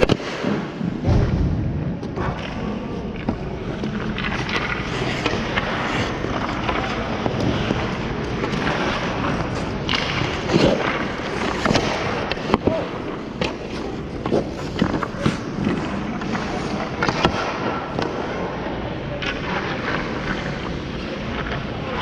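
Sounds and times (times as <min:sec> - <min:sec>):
hockey sticks and pucks clacking: 0:00.0 - 0:00.9, 0:02.0 - 0:22.0
ice skate blades scraping ice: 0:03.7 - 0:17.6.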